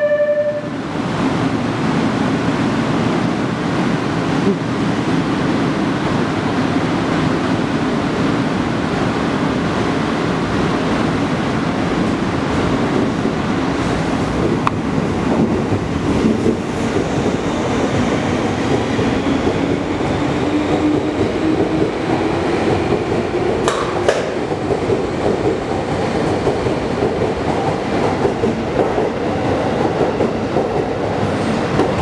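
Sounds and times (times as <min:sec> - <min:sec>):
electric train passing: 0:00.0 - 0:32.0.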